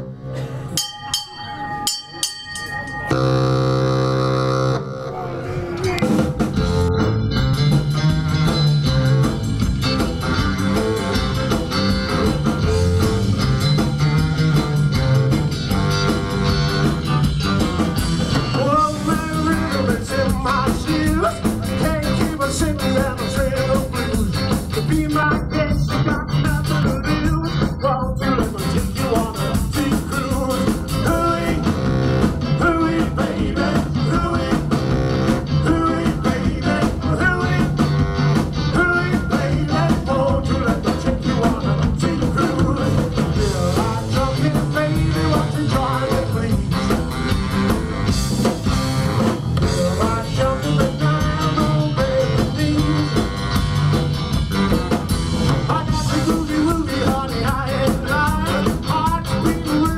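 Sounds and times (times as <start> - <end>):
drum kit: 0.0 - 59.9
pulsing bass line: 1.6 - 59.9
electric guitar: 3.0 - 59.9
bass saxophone: 3.1 - 59.9
person singing: 18.5 - 31.8, 32.5 - 34.7, 35.6 - 37.8, 38.7 - 47.0, 49.6 - 53.3, 55.6 - 59.9.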